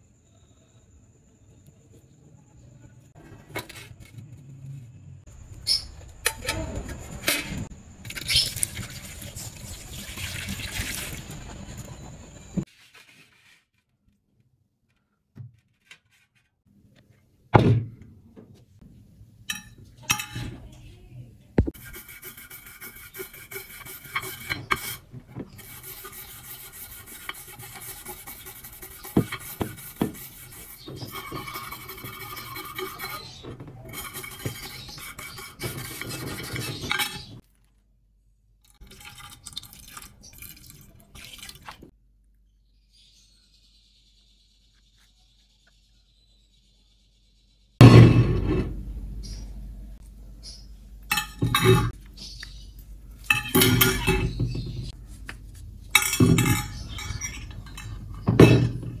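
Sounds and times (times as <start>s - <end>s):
brush scrubbing metal blade: 21.8s - 37.4s.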